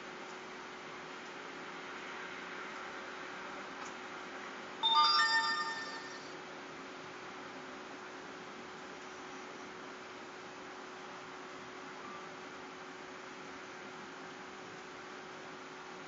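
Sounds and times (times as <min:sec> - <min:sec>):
rising electronic chime: 0:04.8 - 0:06.3.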